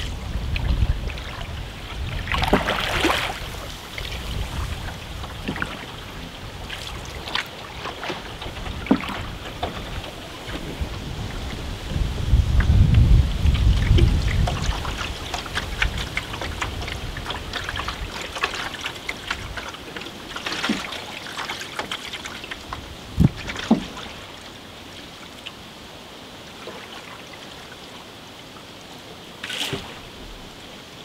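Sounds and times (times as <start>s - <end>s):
water dripping off paddle: 0.0s - 11.6s, 12.5s - 24.6s
paddle stroke splash: 0.0s - 31.0s.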